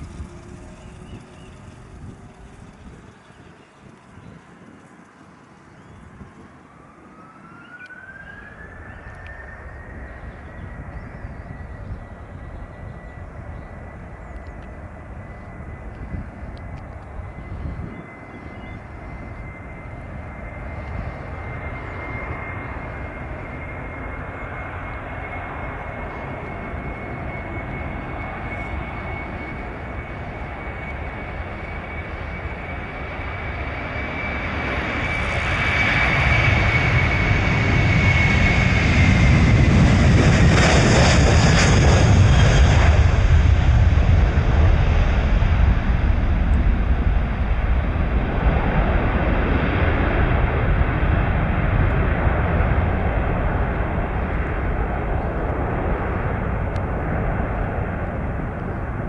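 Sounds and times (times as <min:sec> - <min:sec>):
loud deep rumble: 0:00.0 - 0:04.2
jet engines at takeoff thrust: 0:00.0 - 0:59.0.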